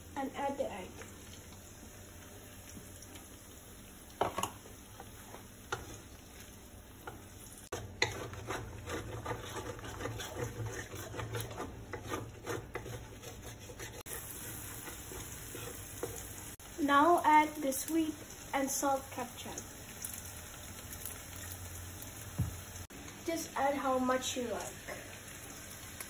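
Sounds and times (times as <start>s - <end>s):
light frying sizzle: 0.0s - 26.0s
wooden spatula scraping a wok: 4.3s - 16.6s.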